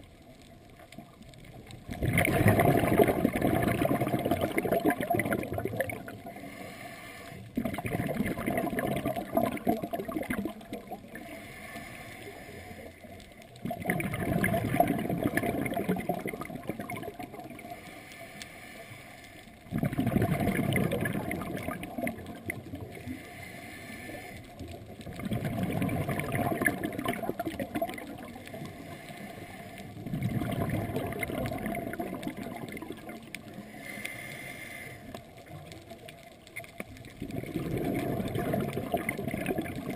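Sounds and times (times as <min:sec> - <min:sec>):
exhaled bubbles gurgling: 0:00.0 - 0:18.1, 0:19.5 - 0:39.9
regulator inhalation: 0:06.3 - 0:07.5, 0:11.2 - 0:13.1, 0:17.6 - 0:19.5, 0:23.0 - 0:24.5, 0:33.6 - 0:35.2.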